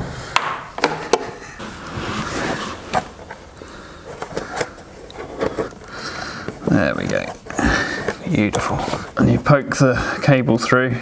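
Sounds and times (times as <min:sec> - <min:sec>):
cable scraping and rustling: 0:01.5 - 0:09.8.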